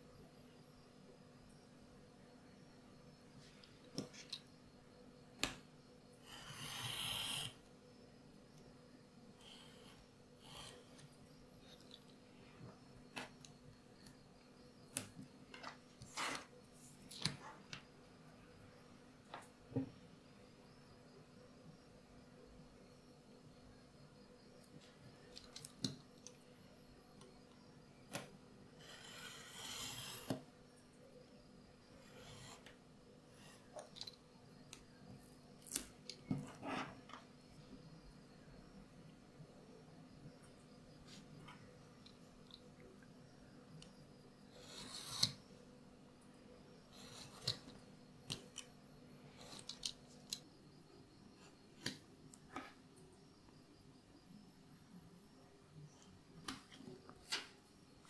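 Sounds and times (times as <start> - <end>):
tool scratching along ruler: 6.3 - 7.6, 28.8 - 30.4.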